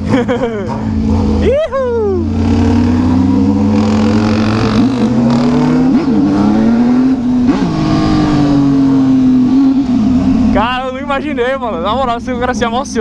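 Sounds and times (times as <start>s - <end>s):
motorcycle engine running: 0.0s - 13.0s
engine rev blips: 2.3s - 10.6s.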